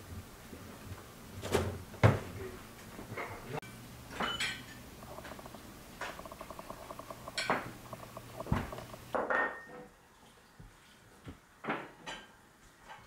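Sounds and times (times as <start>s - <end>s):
crockery clinking: 3.6s - 5.3s, 6.1s - 7.8s.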